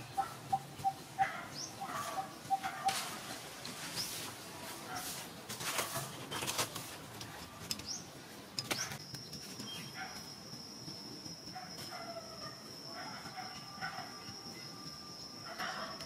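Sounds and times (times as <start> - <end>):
rustles in dry leaves: 1.6 - 7.2
high-pitched whine: 9.0 - 16.0.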